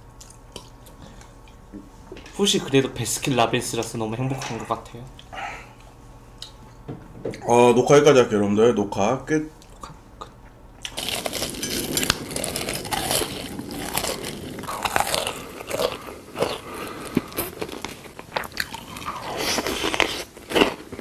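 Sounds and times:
crunchy food being chewed: 10.8s - 21.0s.

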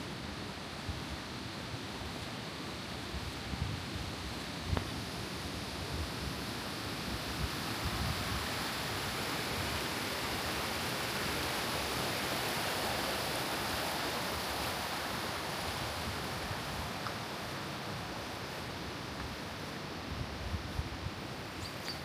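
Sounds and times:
river water rushing: 6.6s - 20.2s.

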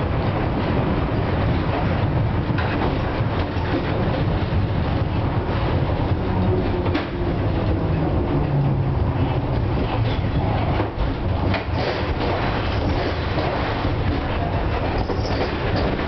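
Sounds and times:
tram wheels rumbling on rails: 0.0s - 16.0s.

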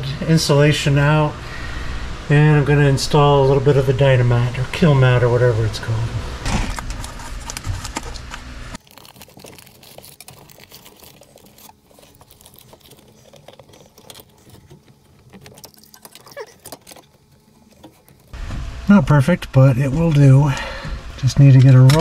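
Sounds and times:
steady low hum: 0.0s - 8.8s, 10.1s - 22.0s
foil mat crinkling and crackling: 6.4s - 18.4s.

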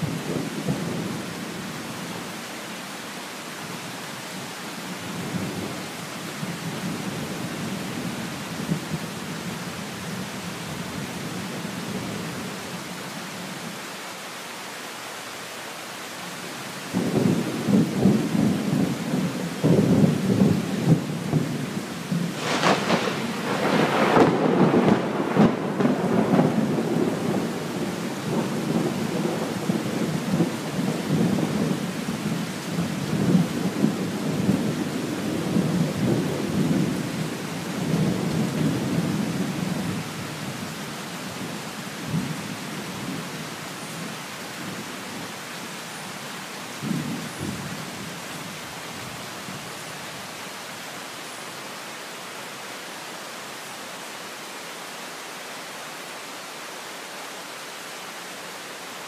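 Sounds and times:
heavy rain: 0.0s - 59.0s
thunder rumbling and cracking: 22.1s - 31.7s.

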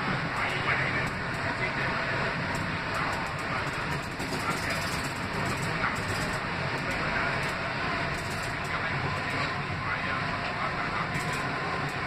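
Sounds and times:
subway train rumble and rail noise: 0.0s - 12.0s.

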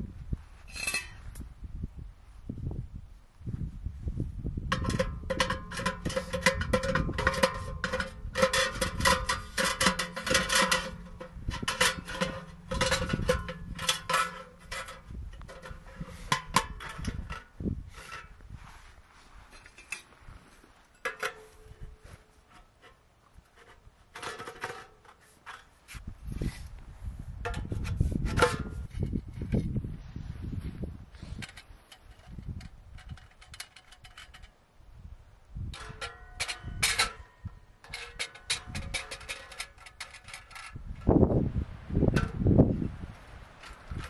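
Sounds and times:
metal stove parts clinking: 0.7s - 1.2s, 4.7s - 18.4s, 19.6s - 20.1s, 20.9s - 25.7s, 27.4s - 29.5s, 31.3s - 34.5s, 35.7s - 41.1s, 42.1s - 42.4s.

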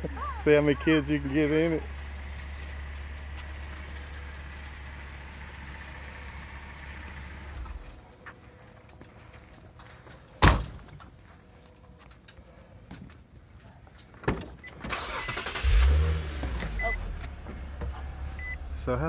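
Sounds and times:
car door thud: 10.4s - 10.8s
low steady rumble: 15.7s - 19.0s.

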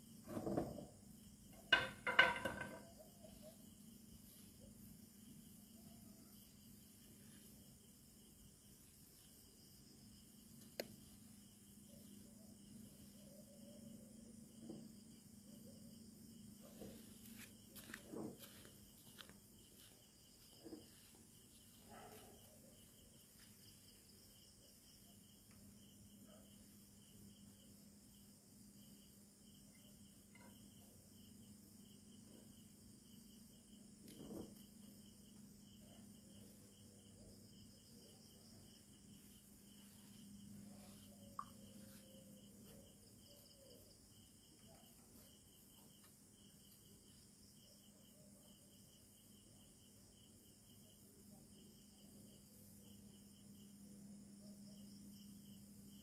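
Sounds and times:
crickets chirping: 0.0s - 56.0s
soft knocks and rustles: 16.8s - 19.9s.

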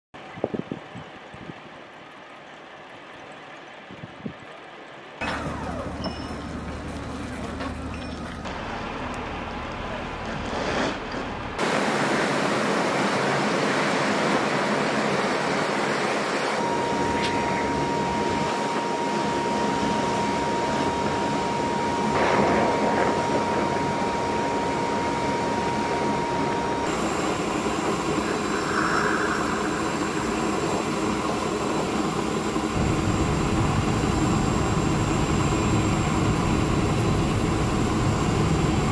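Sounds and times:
steady engine whine: 0.2s - 38.9s
aircraft engine noise: 5.2s - 38.9s
deep engine rumble: 25.9s - 38.9s.

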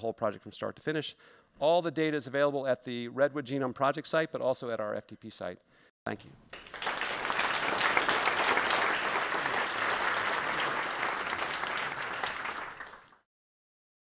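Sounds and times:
audience applauding: 6.5s - 13.3s.

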